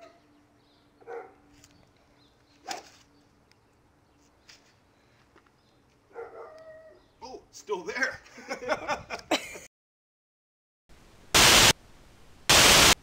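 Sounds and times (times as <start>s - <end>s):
short pitched barking sounds: 1.0s - 1.4s, 2.6s - 3.0s, 6.1s - 6.6s.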